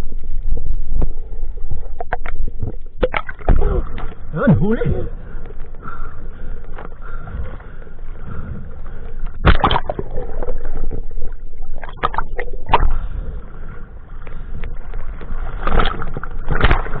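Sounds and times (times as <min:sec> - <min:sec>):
muffled underwater gurgling: 0:00.0 - 0:17.0
sea water sloshing: 0:00.0 - 0:17.0
loud splashes: 0:09.4 - 0:10.6.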